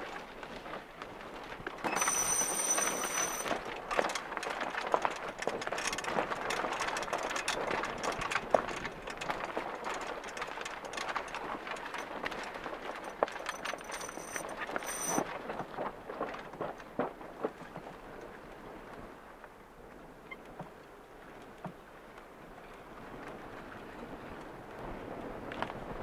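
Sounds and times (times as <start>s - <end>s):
water swishing along hull: 0.0s - 26.0s
light clicks and rattles: 1.6s - 15.2s
high thin steady tone: 1.9s - 3.5s, 14.0s - 15.2s
wind on microphone: 22.4s - 26.0s.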